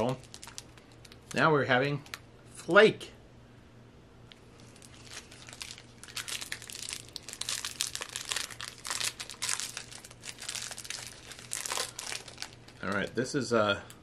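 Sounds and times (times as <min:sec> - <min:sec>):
wrapper being torn and crinkled: 0:00.0 - 0:02.2, 0:04.6 - 0:13.2.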